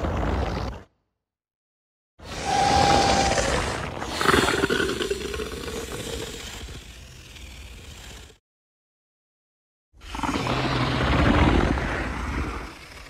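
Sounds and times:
monster roar: 0:02.3 - 0:06.9.

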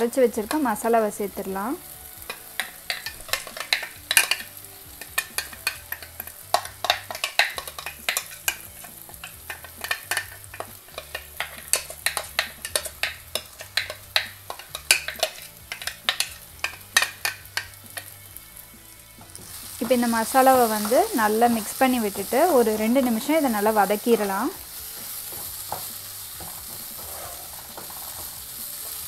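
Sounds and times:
onions frying in oil: 0:00.0 - 0:29.0
spoon scraping plastic jar: 0:26.9 - 0:28.3.

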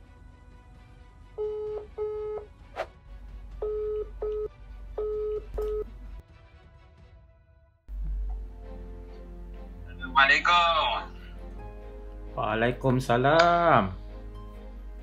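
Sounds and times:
phone ringing tone beeps: 0:01.4 - 0:02.5, 0:03.6 - 0:05.9.

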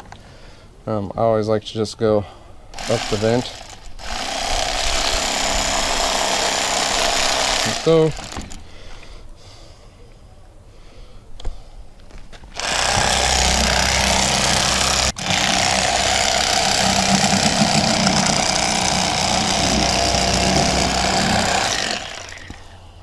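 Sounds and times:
electric fillet knife buzzing: 0:12.6 - 0:22.8.

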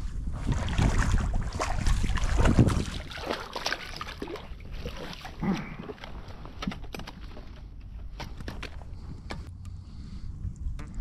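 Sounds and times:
fish splashing in water: 0:00.6 - 0:06.7.

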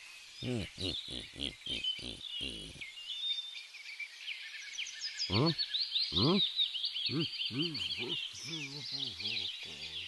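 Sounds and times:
insects chirping: 0:00.1 - 0:02.9
birds chirping: 0:00.3 - 0:03.4, 0:05.2 - 0:10.0
short pitched calls: 0:00.4 - 0:02.8, 0:05.3 - 0:05.6, 0:06.2 - 0:06.4, 0:07.1 - 0:10.0.

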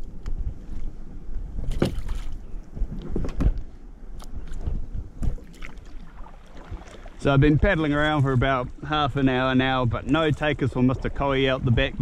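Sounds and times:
water and hull noise: 0:00.0 - 0:12.0
kayak paddle splashes: 0:05.3 - 0:08.6.

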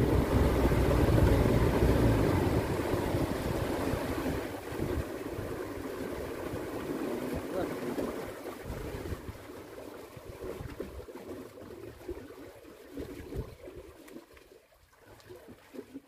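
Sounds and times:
low knocks against hull: 0:00.0 - 0:05.1
water splashing around boat: 0:00.0 - 0:16.0.

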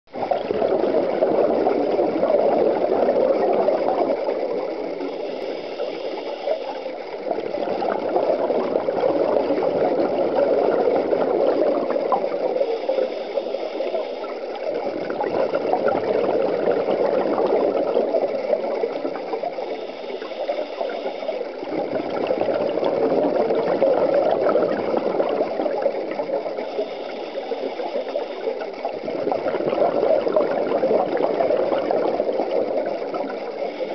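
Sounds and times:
bubbling exhalations underwater: 0:00.1 - 0:05.9, 0:06.5 - 0:33.9
hissing regulator inhalations: 0:12.6 - 0:14.4, 0:26.6 - 0:28.9.

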